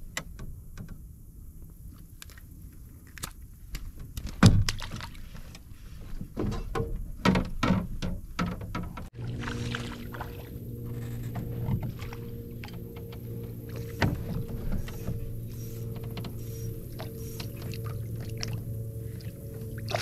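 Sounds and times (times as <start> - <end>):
steady low hum: 0.0 - 7.2, 8.1 - 20.0
fish splashing in water: 9.2 - 12.6, 16.4 - 20.0.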